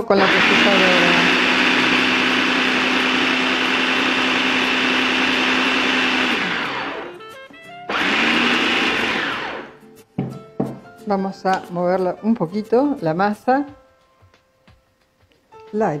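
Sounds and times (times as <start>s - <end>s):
food processor motor running: 0.1s - 7.2s, 7.9s - 9.8s.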